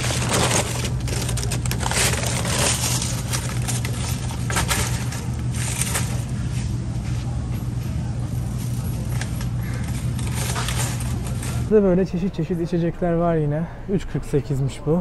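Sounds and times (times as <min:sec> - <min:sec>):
plastic wrap crackling: 0:00.0 - 0:06.4, 0:08.7 - 0:11.7
shopping cart rattling: 0:00.0 - 0:06.7, 0:08.0 - 0:11.8.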